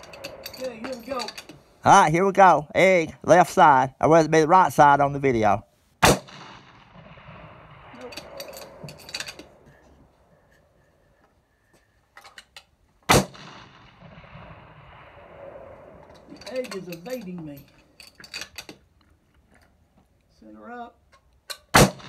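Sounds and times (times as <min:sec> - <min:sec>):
rifle shots echoing: 0:06.0 - 0:09.7, 0:13.1 - 0:16.5, 0:21.7 - 0:22.0.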